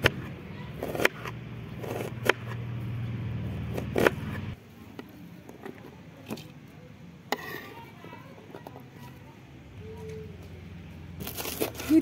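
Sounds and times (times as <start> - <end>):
low engine hum: 1.3 - 4.6
knife scraping along board: 7.3 - 7.9.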